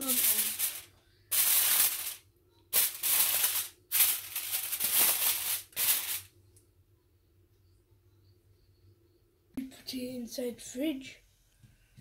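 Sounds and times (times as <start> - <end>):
aluminium foil crinkling: 0.0 - 6.3.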